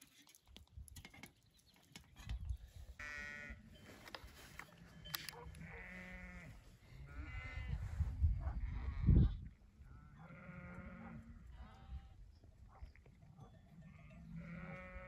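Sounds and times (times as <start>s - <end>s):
sheep bleating: 3.0s - 3.6s, 5.6s - 7.8s, 10.0s - 12.1s, 14.0s - 15.0s.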